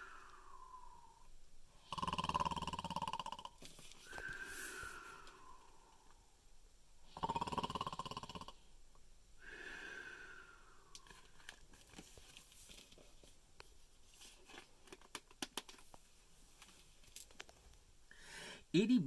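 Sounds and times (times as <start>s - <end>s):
breathy out-breath: 0.0s - 1.9s, 4.1s - 6.4s, 9.4s - 11.5s, 18.1s - 18.7s
man imitating snore: 1.8s - 3.6s, 7.1s - 8.6s
book pages turning: 11.1s - 13.4s.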